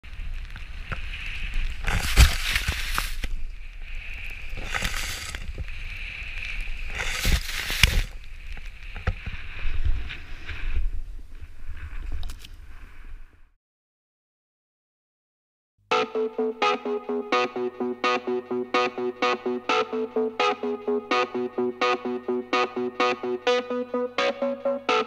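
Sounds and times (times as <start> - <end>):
snowboard carving through powder: 0.1 - 13.1
hissing sweeps of spraying snow: 0.7 - 10.8.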